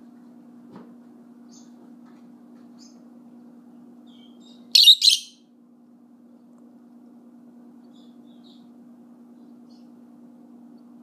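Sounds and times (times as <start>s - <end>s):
lovebird soft chirps: 4.1s - 5.3s
lovebird high-pitched calls: 4.1s - 5.5s.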